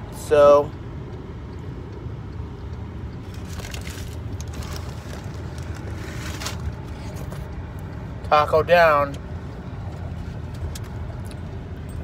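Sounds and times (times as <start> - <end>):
low rumble inside a car: 0.0 - 12.0
food wrapper crackling: 3.3 - 6.7.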